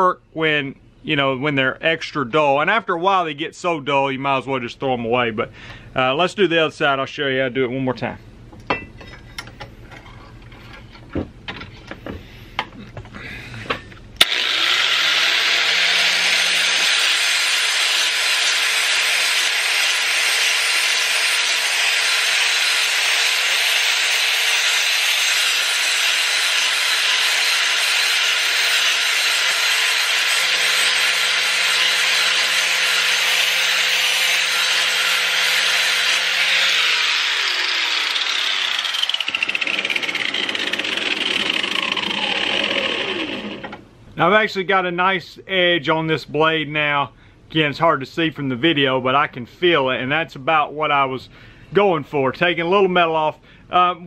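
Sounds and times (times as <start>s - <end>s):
angle grinder grinding steel: 14.2s - 43.8s.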